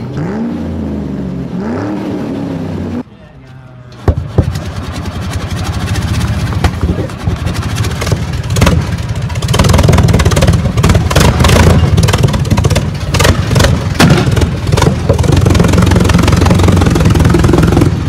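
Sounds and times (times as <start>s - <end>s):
loud old engine firing: 4.0s - 18.0s.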